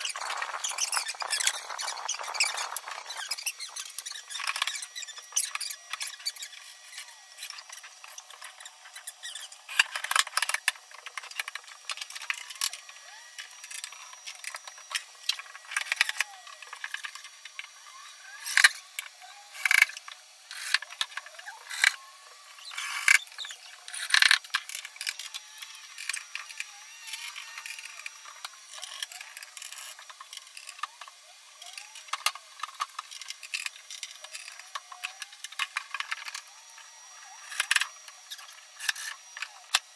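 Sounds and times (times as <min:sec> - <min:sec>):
squeaks: 0:00.0 - 0:10.1, 0:22.6 - 0:24.4
cordless drill driving screws: 0:00.0 - 0:39.9.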